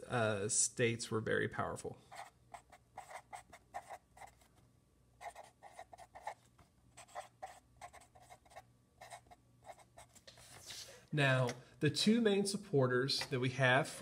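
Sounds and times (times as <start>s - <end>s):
marker scratching on paper: 2.1s - 4.5s, 5.2s - 10.7s.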